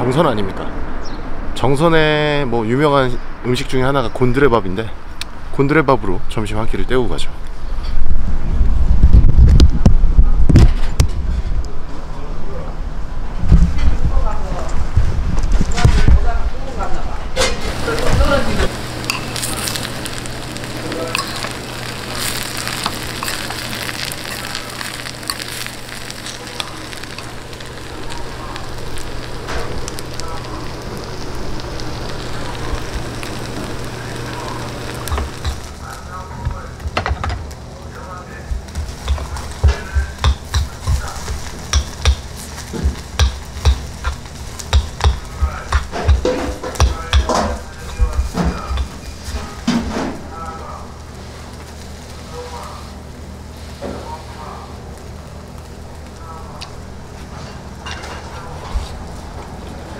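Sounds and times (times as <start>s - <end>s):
steady low hum: 17.1s - 59.9s
food sizzling and crackling: 17.4s - 59.9s.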